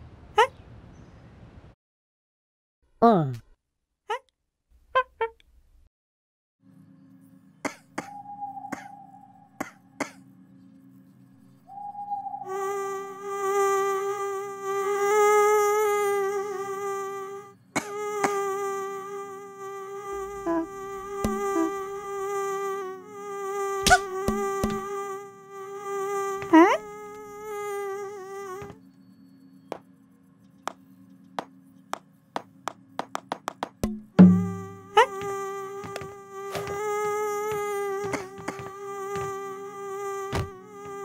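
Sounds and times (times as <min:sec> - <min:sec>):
cartoon buzzing hum: 0:07.6 - 0:10.4, 0:11.7 - 0:28.9, 0:33.8 - 0:41.0.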